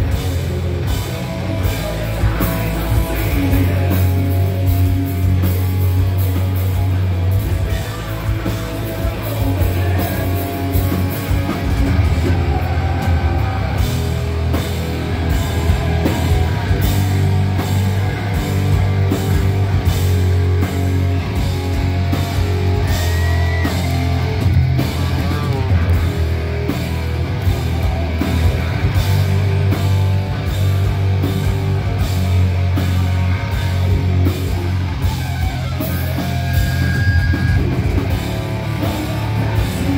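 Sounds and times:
bass guitar: 0.0s - 39.9s
distorted electric guitars: 0.0s - 39.9s
drums: 0.0s - 39.9s.

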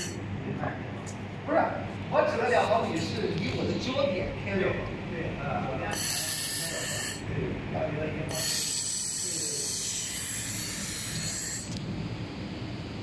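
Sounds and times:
low machine hum: 0.0s - 13.0s
laser welder hissing: 5.9s - 7.2s, 8.3s - 11.8s.

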